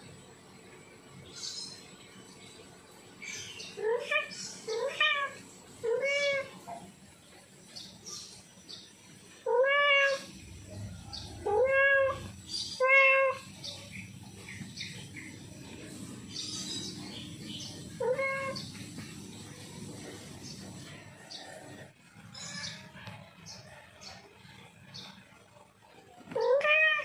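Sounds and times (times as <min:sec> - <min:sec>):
cat meowing loudly: 0:03.8 - 0:06.6, 0:09.5 - 0:10.3, 0:11.4 - 0:13.6, 0:18.0 - 0:18.7, 0:26.4 - 0:27.0.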